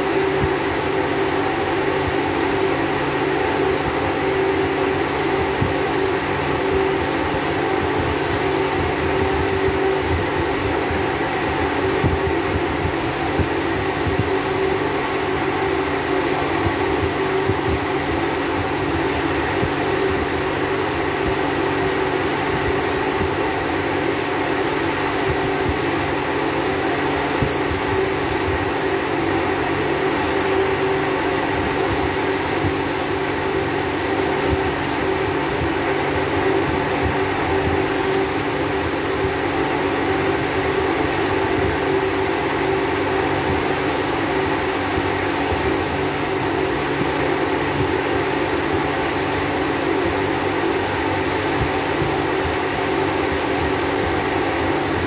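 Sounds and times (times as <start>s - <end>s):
spray gun hissing: 0.0s - 10.8s, 12.9s - 28.9s, 31.7s - 35.3s, 37.8s - 39.7s, 43.7s - 55.0s.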